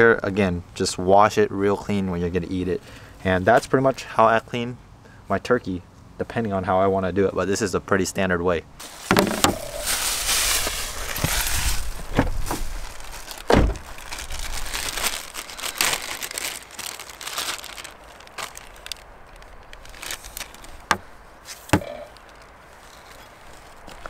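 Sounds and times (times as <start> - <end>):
plastic bag crinkling: 8.8 - 24.0
items knocking on plastic: 9.1 - 9.8.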